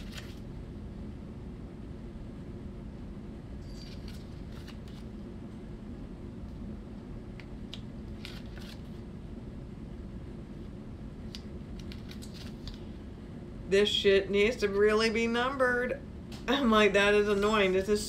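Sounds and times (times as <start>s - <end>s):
booklet pages rustling: 0.0s - 0.4s, 3.8s - 5.2s, 8.1s - 9.0s, 11.8s - 12.9s
low room hum: 0.0s - 18.0s.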